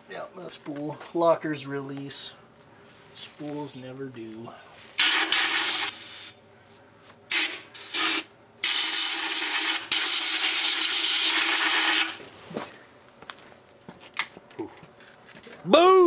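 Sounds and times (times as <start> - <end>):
compressed air blowgun hissing: 5.0 - 6.4, 7.3 - 12.2.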